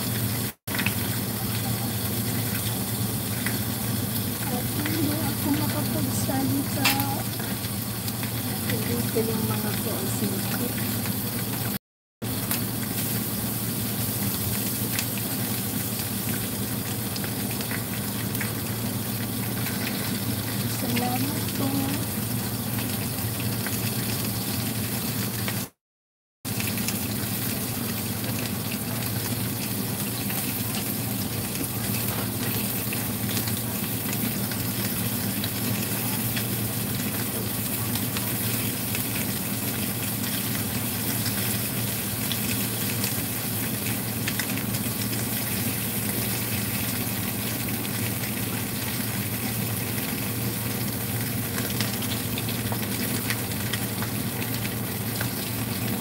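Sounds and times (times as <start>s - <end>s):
low steady hum: 0.0s - 11.4s
fish sizzling in a wok: 0.0s - 25.8s, 26.5s - 56.0s.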